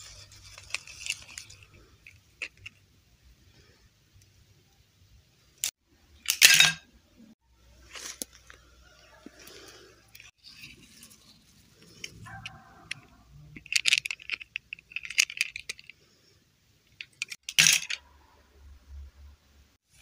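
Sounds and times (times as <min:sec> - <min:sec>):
plastic doll clicking and clinking: 0:00.4 - 0:02.8, 0:11.8 - 0:16.0, 0:16.8 - 0:18.0.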